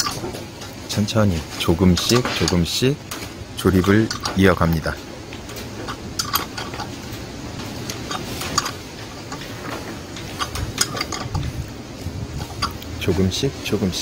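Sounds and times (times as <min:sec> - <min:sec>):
hand tool clicking on metal: 0:00.0 - 0:00.2, 0:01.8 - 0:04.8, 0:05.6 - 0:06.9, 0:07.6 - 0:11.5.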